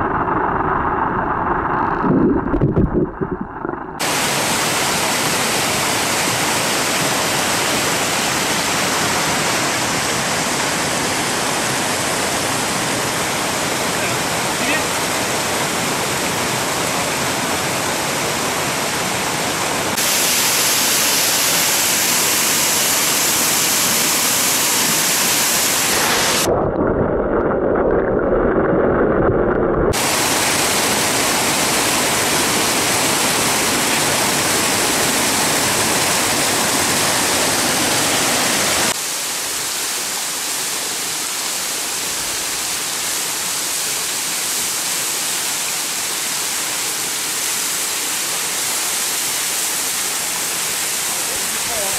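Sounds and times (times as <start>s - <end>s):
muffled underwater rumble: 0.0s - 4.0s, 26.4s - 30.0s
stream and waterfall rushing: 4.0s - 26.5s, 29.9s - 51.9s.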